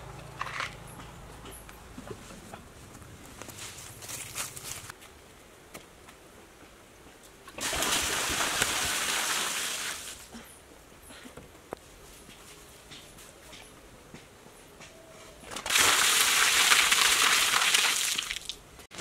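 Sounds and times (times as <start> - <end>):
water splashing on concrete: 7.6 - 10.2, 15.6 - 18.6.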